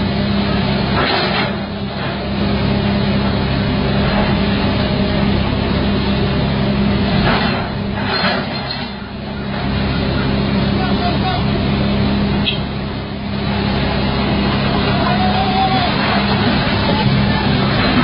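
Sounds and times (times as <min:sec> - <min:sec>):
excavator diesel engine running: 0:00.0 - 0:18.0
noisy rumble: 0:00.0 - 0:18.0
loud rushing noise: 0:10.6 - 0:18.0.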